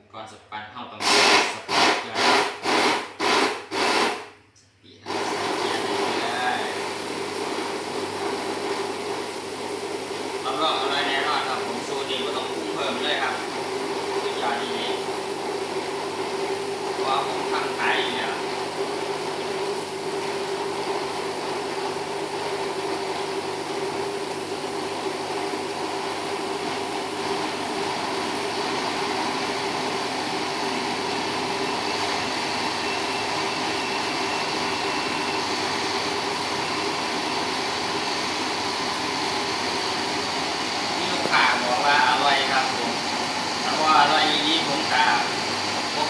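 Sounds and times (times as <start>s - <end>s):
blender motor running: 1.0s - 4.4s, 5.0s - 46.0s.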